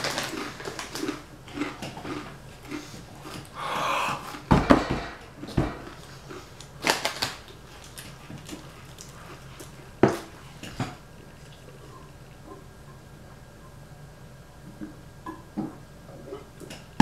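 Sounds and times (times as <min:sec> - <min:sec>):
tortilla chips crunching: 0:00.0 - 0:03.6, 0:05.3 - 0:10.3.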